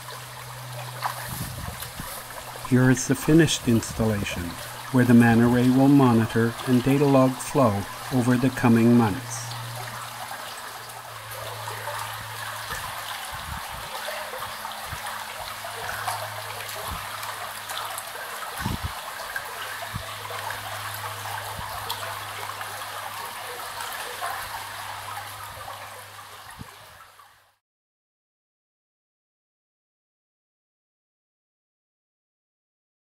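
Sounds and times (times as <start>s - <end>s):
water flowing through a metal culvert: 0.0s - 27.6s.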